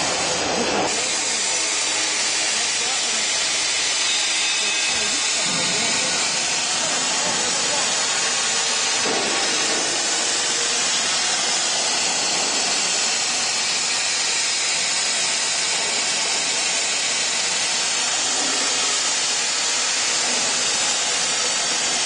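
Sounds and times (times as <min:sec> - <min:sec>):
plasma torch cutting steel: 0:00.0 - 0:22.0.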